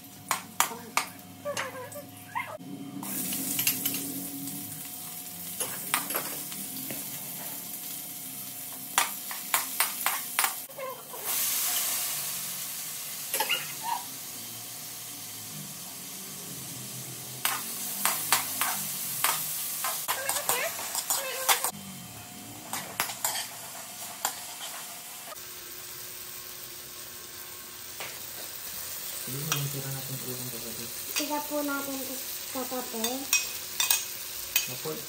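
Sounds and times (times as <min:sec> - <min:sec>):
vegetables sizzling in hot oil: 0:03.0 - 0:21.9, 0:22.6 - 0:35.0
metal spatula scraping a pan: 0:22.7 - 0:23.6.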